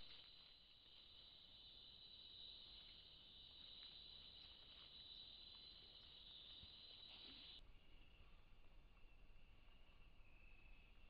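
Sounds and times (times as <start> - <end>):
night insects buzzing: 0.0 - 8.0.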